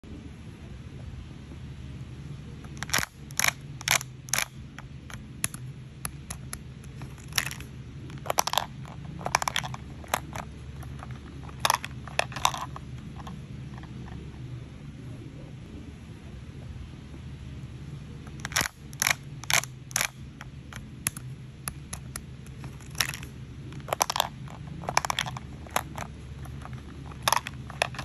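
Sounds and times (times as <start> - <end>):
low hum: 0.0 - 28.0
plastic toy machine clicks: 2.8 - 13.8, 18.3 - 28.0.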